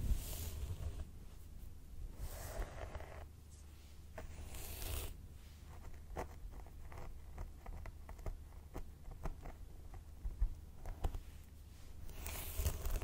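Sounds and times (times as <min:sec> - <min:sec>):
fingernails scratching scalp: 0:02.2 - 0:03.3, 0:04.2 - 0:05.2, 0:12.1 - 0:13.0.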